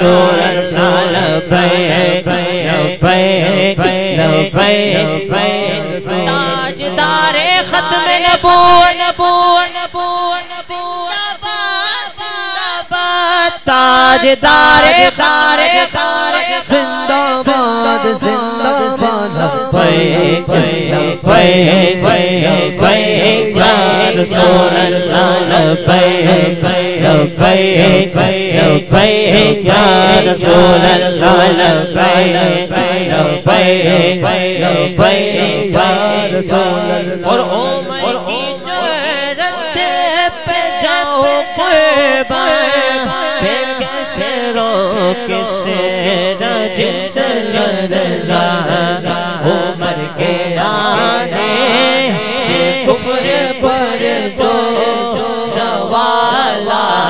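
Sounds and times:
men singing into microphones: 0:00.0 - 0:57.0
group chanting: 0:18.8 - 0:40.8, 0:46.0 - 0:57.0.

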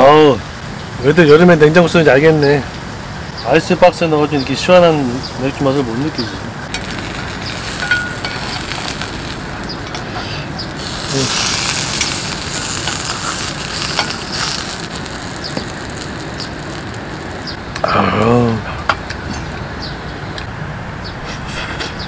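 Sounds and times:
pizza sizzling in frying pan: 0:06.2 - 0:17.8.

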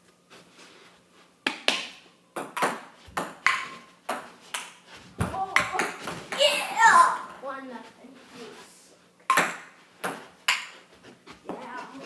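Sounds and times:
ping-pong ball clicking off paddles: 0:01.5 - 0:04.8, 0:09.3 - 0:10.8.

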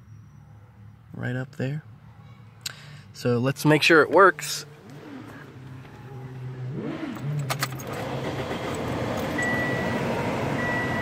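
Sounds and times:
keys jangling in ignition: 0:07.1 - 0:09.5
car warning chime beeping: 0:08.6 - 0:11.0.

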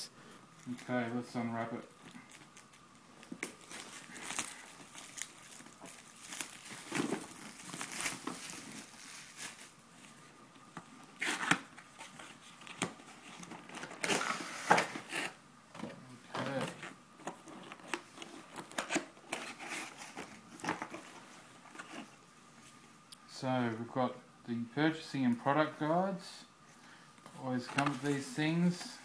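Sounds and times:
plastic shrink wrap crinkling: 0:00.5 - 0:10.2.

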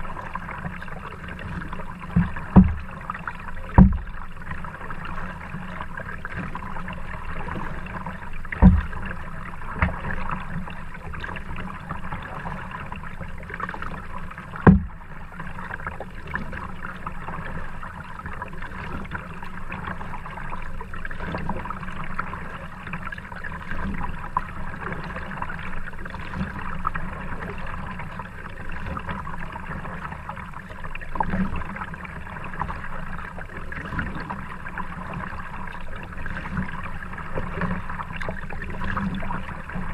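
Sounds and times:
paddle strokes in water: 0:00.0 - 0:39.9
sharp knocks: 0:03.8 - 0:04.1, 0:08.6 - 0:08.9, 0:14.7 - 0:14.9.

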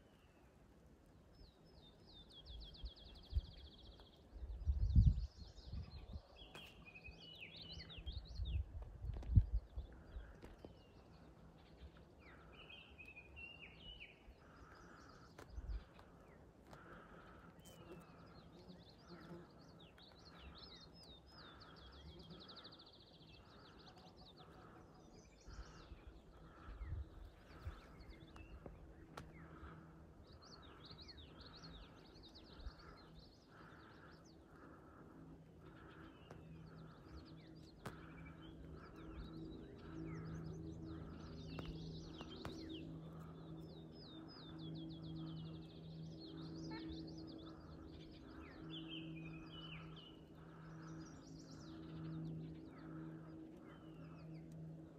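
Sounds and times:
faint hum: 0:00.0 - 0:54.9
songbirds chirping and singing: 0:00.0 - 0:54.9.

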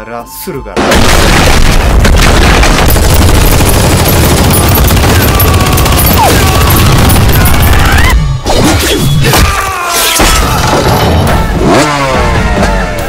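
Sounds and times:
gunfire: 0:00.8 - 0:08.0
action film music: 0:01.8 - 0:13.0.

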